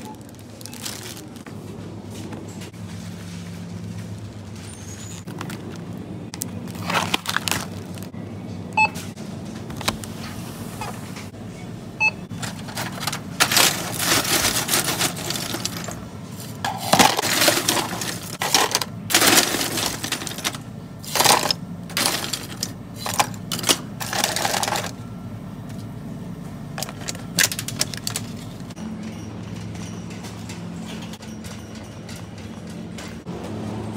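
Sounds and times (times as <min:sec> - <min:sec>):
plastic scoop clattering on metal bins: 0:06.7 - 0:08.1, 0:12.3 - 0:25.0, 0:26.8 - 0:28.8.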